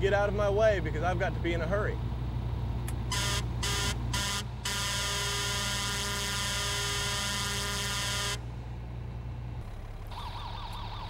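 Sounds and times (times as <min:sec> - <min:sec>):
fire engine air horn blasts: 0:03.1 - 0:08.5.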